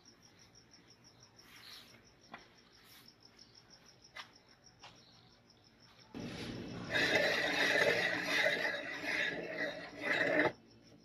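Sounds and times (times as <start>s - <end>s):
loud rasping noise: 6.8s - 10.6s.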